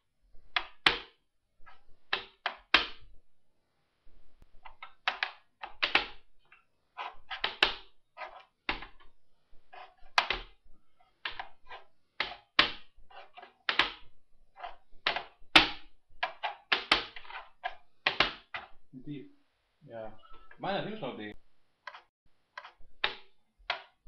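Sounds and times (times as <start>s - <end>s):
chess pieces clacking on board: 0.5s - 3.1s, 4.6s - 18.8s, 21.9s - 24.0s
chess clock buttons slapped: 5.1s - 6.2s, 13.7s - 14.0s, 23.0s - 24.0s.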